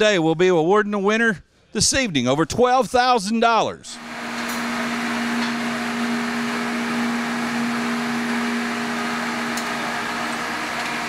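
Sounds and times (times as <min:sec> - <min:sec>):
steady machine hum: 0:04.0 - 0:11.0.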